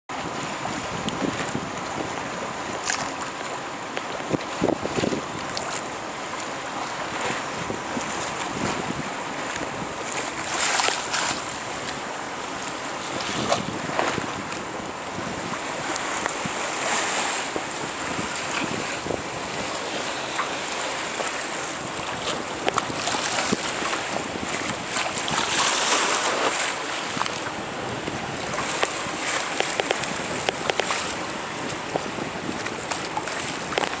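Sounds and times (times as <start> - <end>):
wind buffeting microphone: 0.1 - 3.3, 4.0 - 5.8, 7.0 - 34.0
choppy sea water splashing: 0.1 - 34.0
water slaps: 9.5 - 12.0, 18.2 - 34.0.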